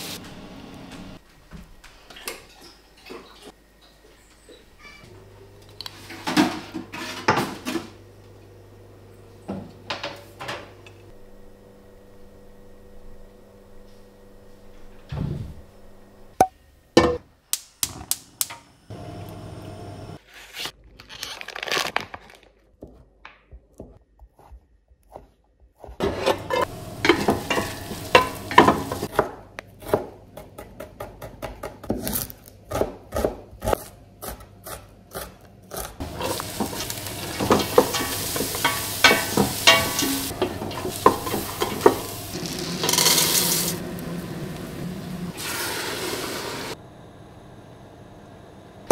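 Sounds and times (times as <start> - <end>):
vegetables sizzling in pot: 0.0 - 0.7, 26.0 - 29.1, 36.0 - 46.8
wooden spoon stirring: 36.0 - 43.2
pot knocking on stove grates: 36.1 - 42.2.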